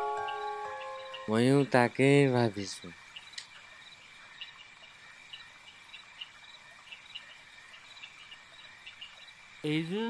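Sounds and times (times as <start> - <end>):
steady high-pitched trill: 0.0 - 1.7
crickets chirping: 0.2 - 10.0.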